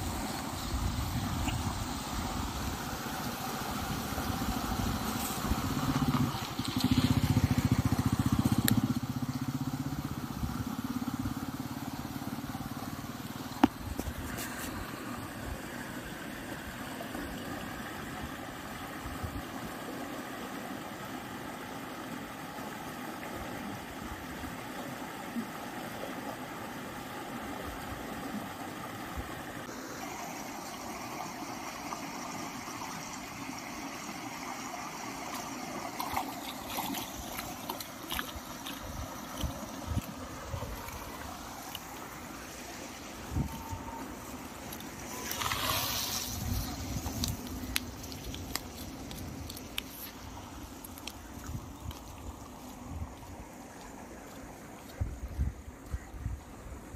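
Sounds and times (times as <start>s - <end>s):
engine running: 2.8s - 14.9s.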